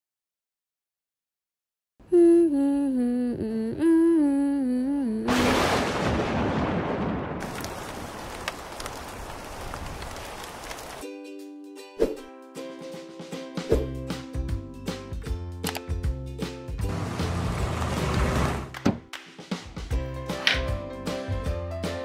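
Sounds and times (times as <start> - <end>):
person humming: 2.0 - 5.4
steady rain: 5.3 - 11.0
thunder clap rumbling: 5.3 - 11.0.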